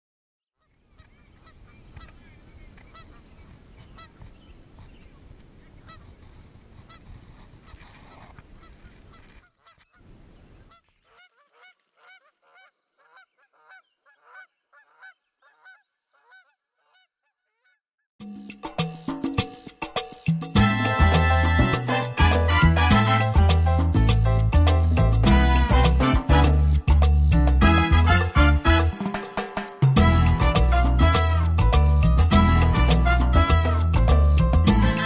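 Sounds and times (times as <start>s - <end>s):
honking bird calls: 10.7s - 17.0s.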